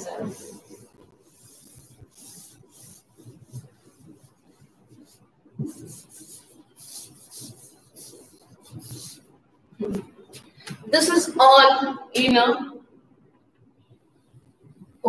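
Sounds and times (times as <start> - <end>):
duster rubbing on chalkboard: 0.0 - 9.2.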